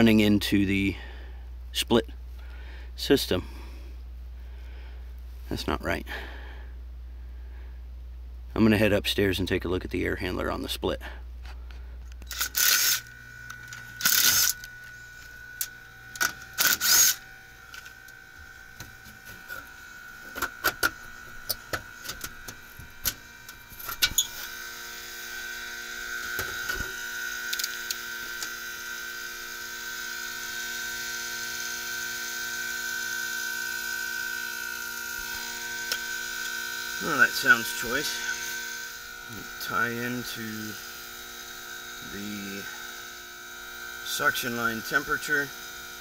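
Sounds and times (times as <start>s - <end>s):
air handler humming: 0.0s - 29.8s, 32.8s - 46.0s.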